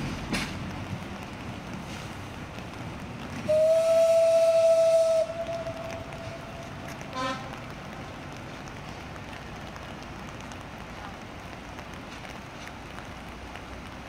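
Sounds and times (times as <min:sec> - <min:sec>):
train running noise: 0:00.0 - 0:14.0
steam locomotive whistle blast: 0:03.5 - 0:06.4.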